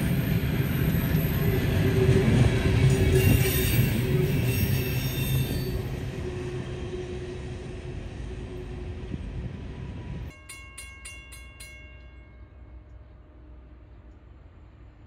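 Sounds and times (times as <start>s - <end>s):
freight train rumbling past: 0.0s - 15.0s
railroad crossing bell ringing: 2.8s - 6.0s, 10.3s - 13.9s.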